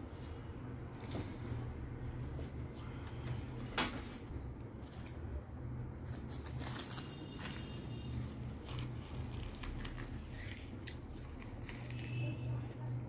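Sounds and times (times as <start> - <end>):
bread tearing and crackling: 4.8 - 13.0.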